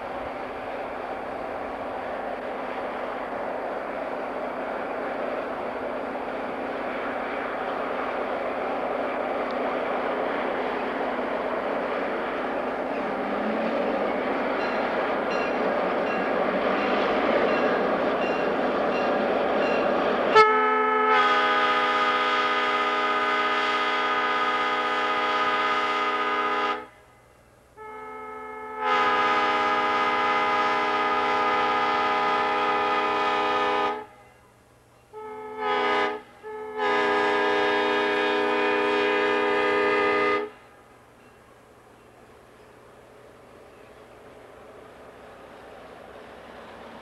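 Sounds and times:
steady rushing noise: 0.0s - 20.4s
locomotive air horn blasts: 20.3s - 27.2s, 27.8s - 34.4s, 35.1s - 40.7s.

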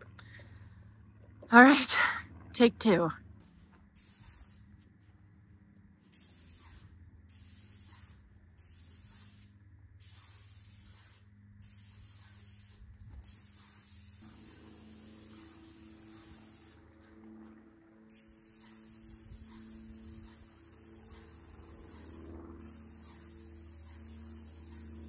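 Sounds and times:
paint spray gun hissing: 4.0s - 4.7s, 6.1s - 16.8s, 18.1s - 25.0s.

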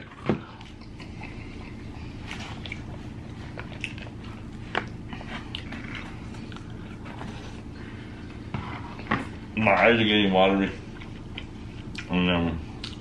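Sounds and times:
low steady hum: 0.0s - 13.0s
chewing: 0.1s - 7.7s, 10.9s - 12.1s, 12.7s - 13.0s.

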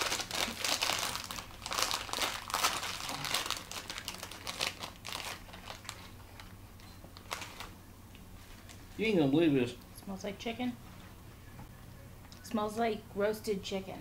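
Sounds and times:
chip bag crinkling: 0.0s - 6.6s, 7.2s - 7.8s.

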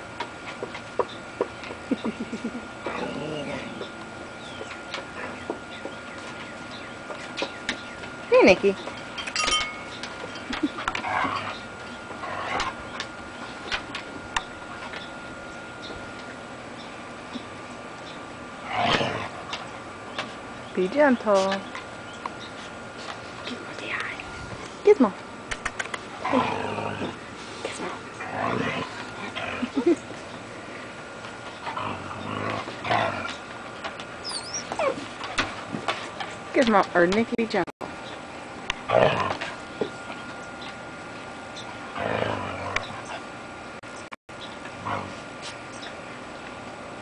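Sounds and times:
dogs growling: 1.9s - 6.0s, 10.4s - 13.2s, 18.6s - 19.7s, 25.8s - 36.5s, 38.8s - 40.1s, 41.7s - 43.4s, 44.7s - 45.4s.

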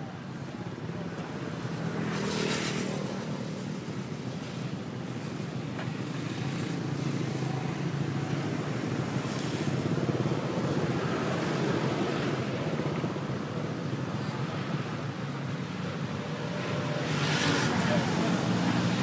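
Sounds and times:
roadside traffic: 0.0s - 19.0s
steady engine hum: 0.0s - 19.0s.

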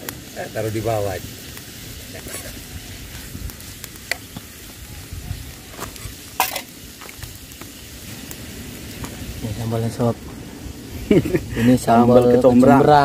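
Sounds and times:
meat sizzling in a pan: 0.0s - 13.0s
stirring clicks and scrapes in pan: 1.4s - 4.7s, 5.7s - 7.8s.

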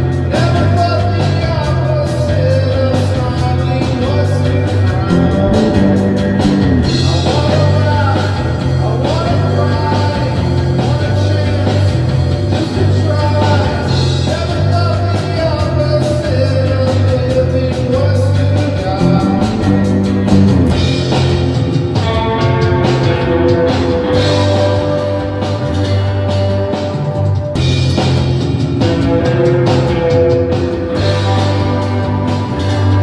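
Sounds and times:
bass guitar: 0.0s - 33.0s
drums: 0.0s - 33.0s
reverb-soaked electric guitar: 2.8s - 33.0s
electric guitar sustained notes: 5.0s - 8.0s, 19.0s - 21.7s.

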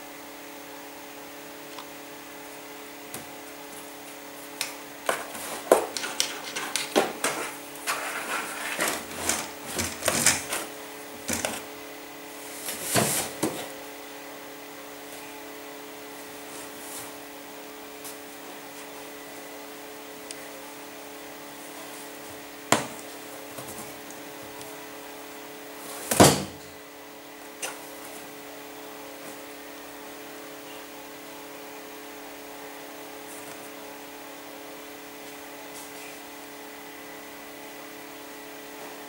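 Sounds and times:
cats scuffling among cardboard boxes: 5.1s - 11.7s, 12.3s - 13.8s.

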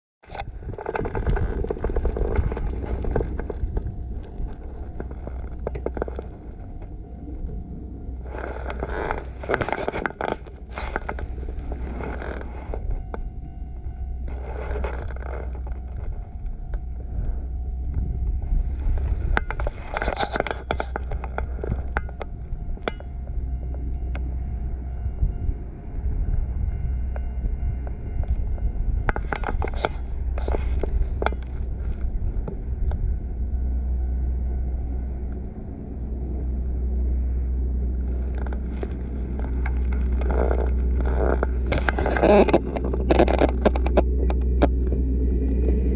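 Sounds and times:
wind buffeting microphone: 0.2s - 45.9s.

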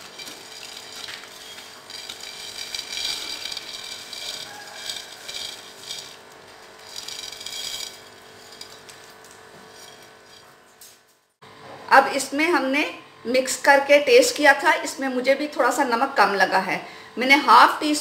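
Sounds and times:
fritters rattling on ceramic plate: 0.0s - 10.5s.

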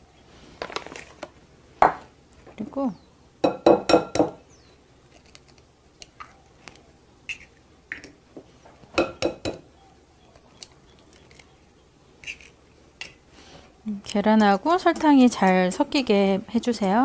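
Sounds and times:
eggs knocking on glass bowl: 3.4s - 4.4s, 9.0s - 9.6s.

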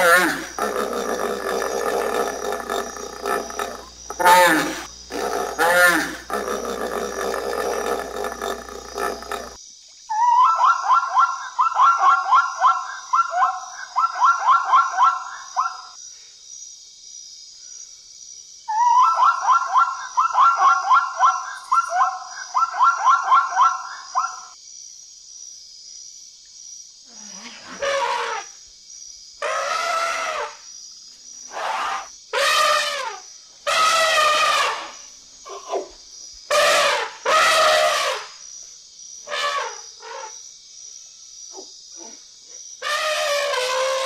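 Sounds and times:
elephant trumpeting: 0.0s - 9.6s, 27.8s - 28.4s, 29.4s - 30.5s, 31.5s - 35.0s, 36.5s - 38.2s, 42.8s - 44.0s
zebra barking yelps: 0.0s - 9.6s, 33.7s - 34.8s, 36.5s - 38.2s.

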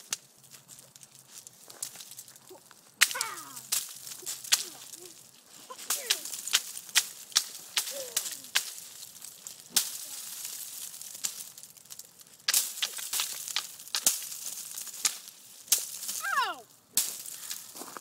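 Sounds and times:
ice cracking and clinking: 0.0s - 18.0s
person speaking: 2.5s - 6.5s, 7.8s - 8.6s, 16.2s - 16.7s.

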